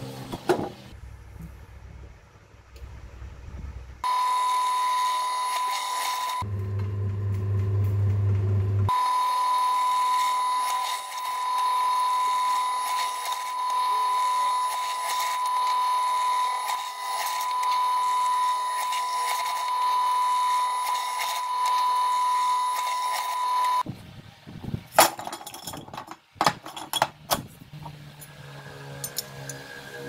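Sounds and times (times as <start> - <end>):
drill press motor whining: 4.0 - 7.9, 8.8 - 23.8
metal pieces clinking on wooden bench: 25.0 - 27.2.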